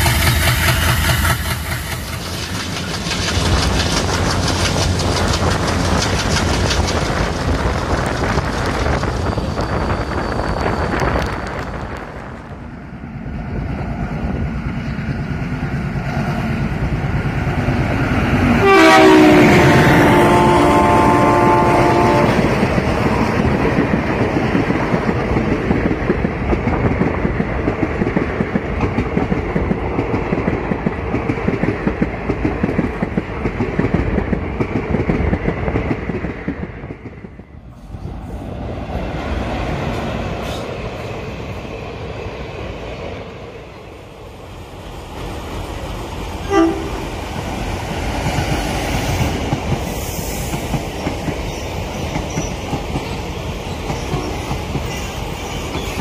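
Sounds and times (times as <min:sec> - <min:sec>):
wheels clattering over rail joints: 0:00.0 - 0:08.5
train rumbling past: 0:00.0 - 0:56.0
locomotive horn toot: 0:18.6 - 0:22.4, 0:46.4 - 0:47.0.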